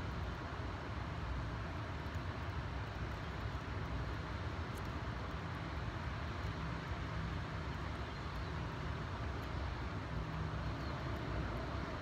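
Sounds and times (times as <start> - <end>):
wind: 0.0 - 12.0
river water rushing: 8.6 - 12.0.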